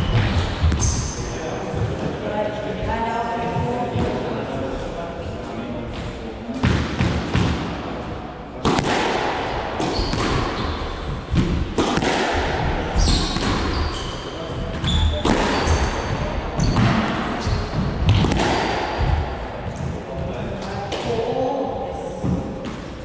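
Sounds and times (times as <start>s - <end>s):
squash ball hitting rackets and walls: 0.0s - 1.9s, 5.9s - 7.9s, 8.6s - 21.4s
shoes squeaking on wooden floor: 13.0s - 16.0s.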